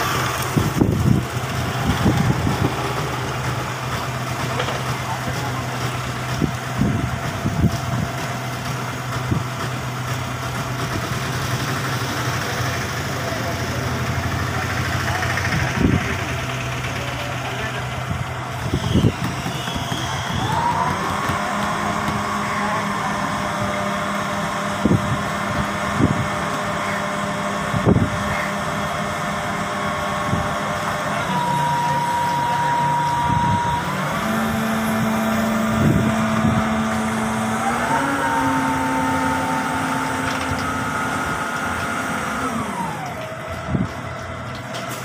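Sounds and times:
crane engine running: 0:00.0 - 0:45.0.

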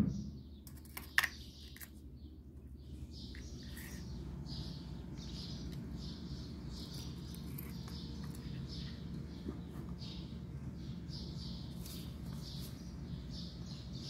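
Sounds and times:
small birds chirping: 0:00.0 - 0:14.0
steady low hum: 0:00.0 - 0:14.0.

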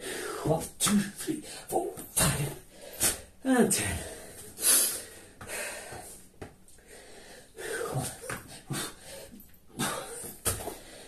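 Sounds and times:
man breathing hard and wheezing: 0:00.0 - 0:00.5, 0:04.0 - 0:11.0.

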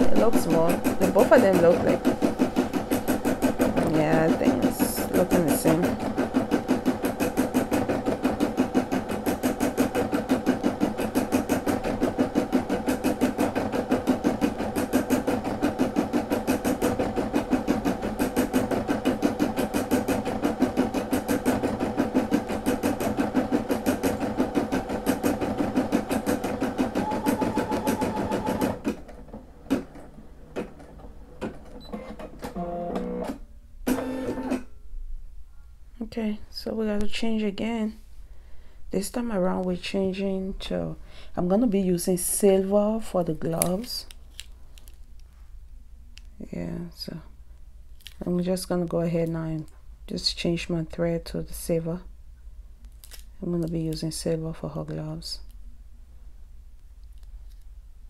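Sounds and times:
embroidery machine stitching: 0:00.0 - 0:34.7.

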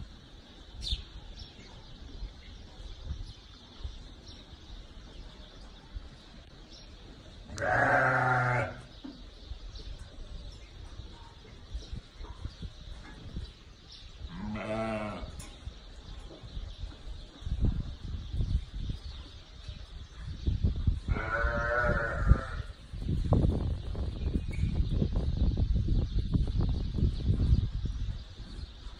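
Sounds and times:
sheep bleating: 0:07.5 - 0:08.8, 0:14.4 - 0:15.3, 0:21.1 - 0:22.7.

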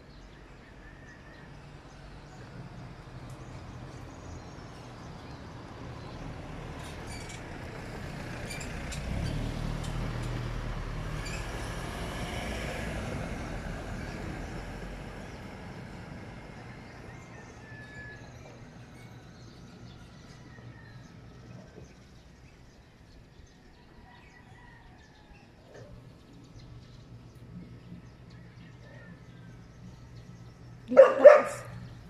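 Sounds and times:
pickup truck driving past: 0:05.6 - 0:17.3.

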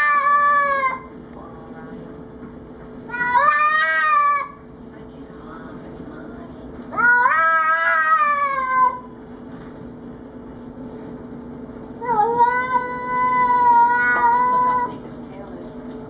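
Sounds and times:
cat yowling: 0:00.0 - 0:01.1, 0:03.1 - 0:04.6, 0:06.9 - 0:09.1, 0:12.0 - 0:14.9.

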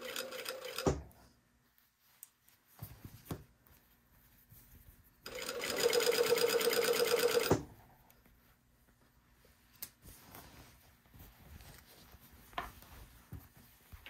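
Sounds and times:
sewing machine running: 0:00.0 - 0:01.0, 0:05.3 - 0:07.6.

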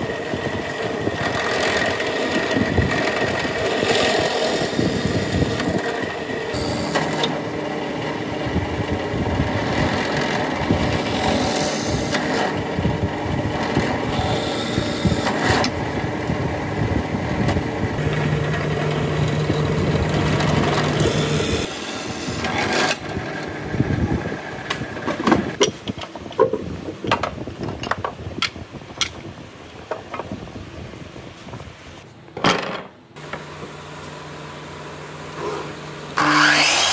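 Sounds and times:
drill press boring wood: 0:00.0 - 0:25.6, 0:33.2 - 0:36.9.

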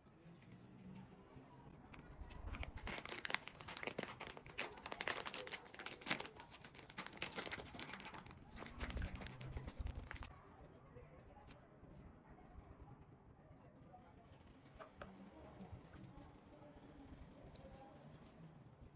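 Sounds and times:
plastic bag crinkling: 0:02.1 - 0:10.3.

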